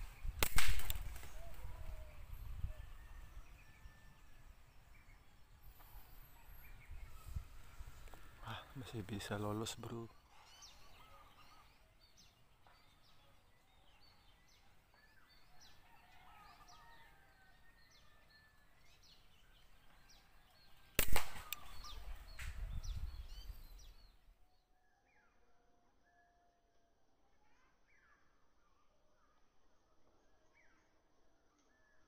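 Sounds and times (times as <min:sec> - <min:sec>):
small birds chirping: 0:00.0 - 0:24.3
air rifle shot: 0:00.3 - 0:01.4, 0:21.0 - 0:22.6.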